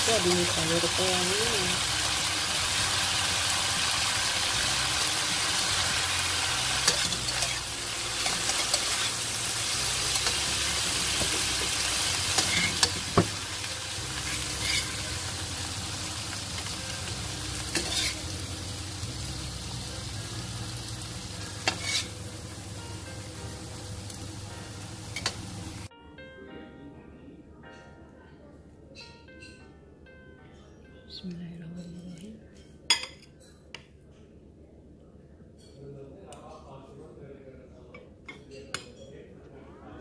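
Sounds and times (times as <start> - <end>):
vegetables sizzling in hot oil: 0.0 - 25.9
metal spatula scraping wok: 6.7 - 13.1, 14.2 - 15.2, 17.7 - 18.3, 21.6 - 22.2.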